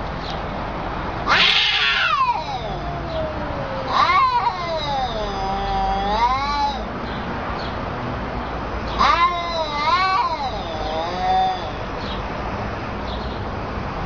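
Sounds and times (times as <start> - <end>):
cats yowling: 1.2 - 7.0, 8.9 - 12.0.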